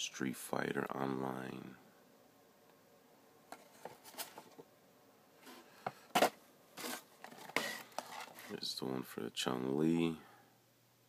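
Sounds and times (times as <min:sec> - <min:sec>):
cardboard boxes tapping and rustling: 0:05.8 - 0:08.5.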